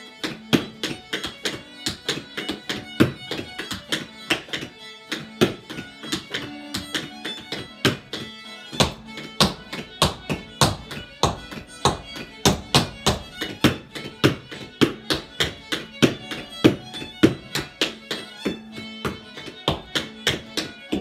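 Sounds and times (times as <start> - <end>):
fiddle tune: 0.0 - 21.0
shoes tapping on wooden board: 0.2 - 21.0.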